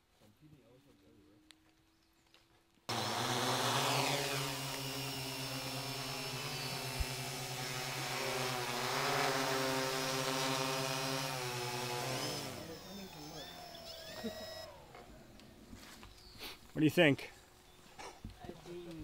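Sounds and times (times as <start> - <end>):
drone propellers whirring: 2.9 - 15.6.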